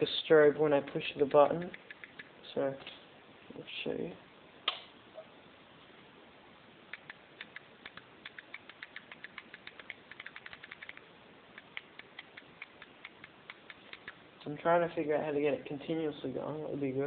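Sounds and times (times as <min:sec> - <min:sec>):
switch clicking rapidly: 0:00.9 - 0:02.3, 0:06.9 - 0:11.0, 0:11.6 - 0:14.2.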